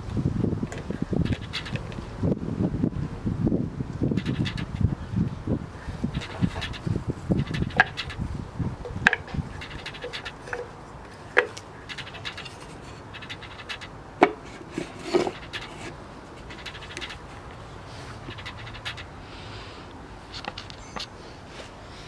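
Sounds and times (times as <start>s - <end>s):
wooden blocks clacking: 0.7s - 2.0s, 4.2s - 4.8s, 6.2s - 8.2s, 8.9s - 10.7s, 11.3s - 17.3s, 18.3s - 19.0s
light wooden scraping: 4.2s - 4.8s, 6.1s - 8.2s, 9.0s - 19.1s.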